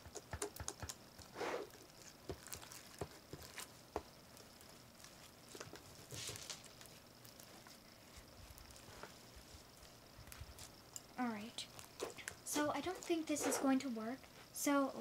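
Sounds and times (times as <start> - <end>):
slime squishing by hand: 1.2 - 9.0.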